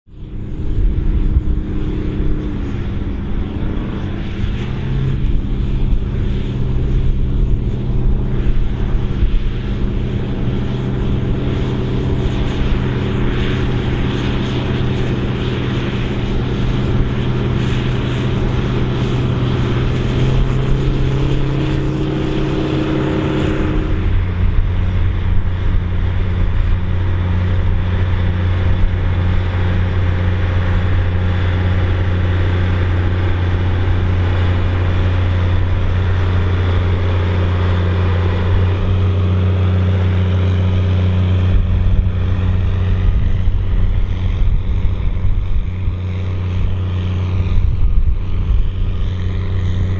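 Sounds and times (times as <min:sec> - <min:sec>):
lower engine note: 0:00.0 - 0:49.9
tractor engines running: 0:00.1 - 0:49.9.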